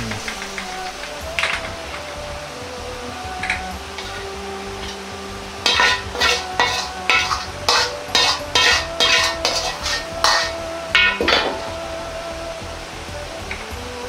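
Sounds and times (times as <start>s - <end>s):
sizzling: 0.0s - 14.0s
metal ladle scraping a wok: 3.4s - 11.8s.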